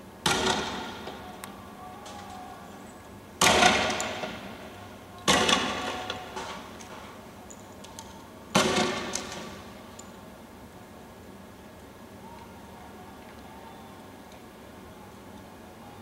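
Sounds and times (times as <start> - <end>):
tear gas launcher bangs: 3.4 - 4.5, 8.6 - 9.3.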